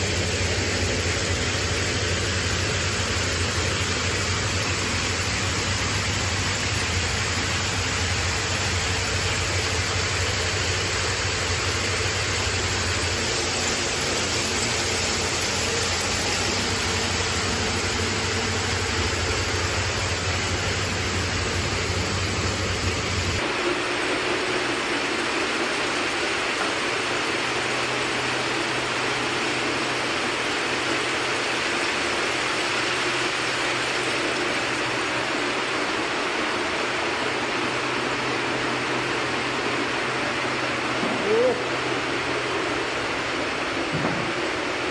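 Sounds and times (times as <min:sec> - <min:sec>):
braiding machines clattering: 0:00.1 - 0:23.4.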